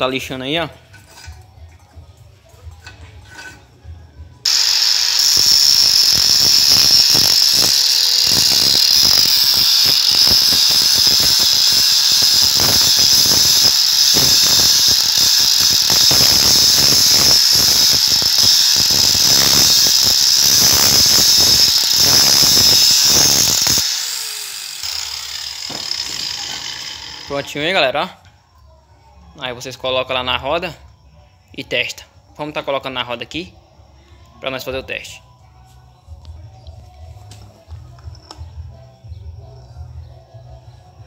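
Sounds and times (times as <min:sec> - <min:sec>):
grinding disc scraping steel: 0:02.8 - 0:03.8, 0:04.5 - 0:27.7
angle grinder whining: 0:04.4 - 0:27.8.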